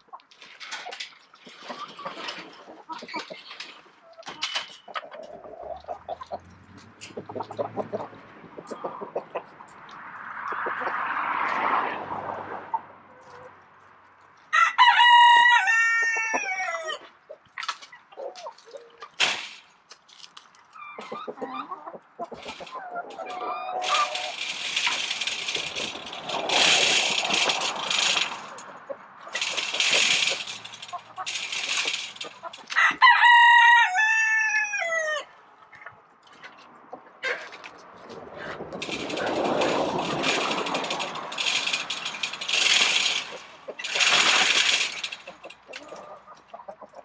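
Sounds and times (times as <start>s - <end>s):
hens clucking: 0.0s - 9.7s, 10.4s - 11.1s, 16.0s - 19.9s, 20.8s - 47.0s
pole scraping along chain-link fence: 0.4s - 9.2s, 18.2s - 19.9s, 21.0s - 34.9s, 37.2s - 46.8s
rooster crowing: 14.5s - 17.0s, 32.7s - 35.3s.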